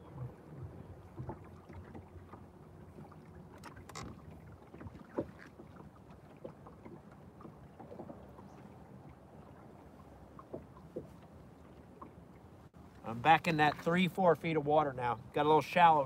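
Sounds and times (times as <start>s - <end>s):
low hum of boat engine: 0.0s - 16.0s.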